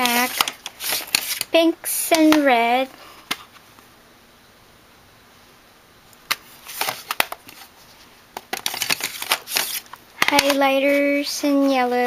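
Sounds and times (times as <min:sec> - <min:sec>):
plastic palettes clicking and clattering: 0:00.0 - 0:01.5, 0:06.3 - 0:07.7, 0:08.4 - 0:10.8.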